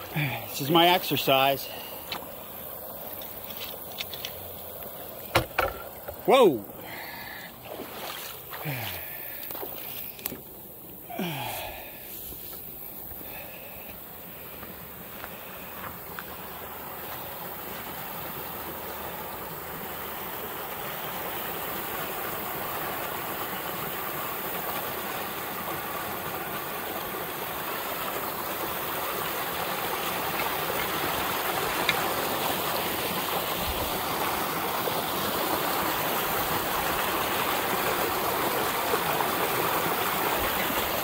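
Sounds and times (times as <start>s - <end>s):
water rushing down a channel: 6.3s - 12.0s, 16.2s - 41.0s.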